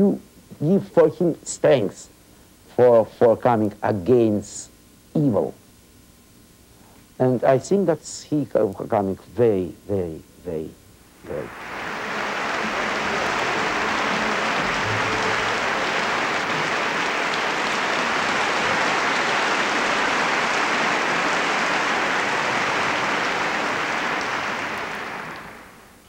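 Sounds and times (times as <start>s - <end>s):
audience applauding: 11.2s - 26.0s.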